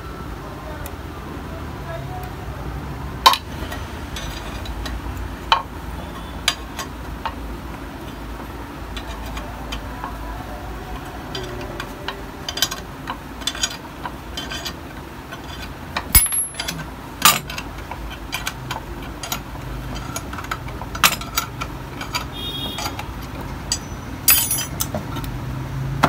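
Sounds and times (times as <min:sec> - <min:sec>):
metal tool clicks and knocks: 0:03.2 - 0:07.4, 0:11.0 - 0:25.4.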